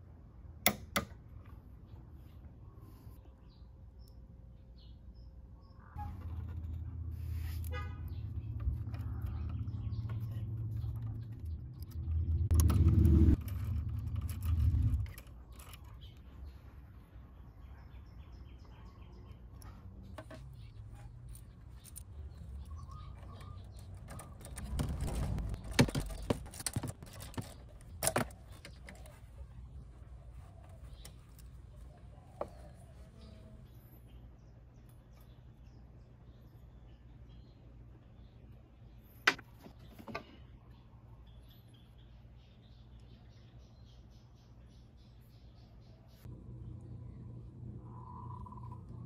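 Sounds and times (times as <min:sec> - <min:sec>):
low rumble: 0:46.3 - 0:49.0.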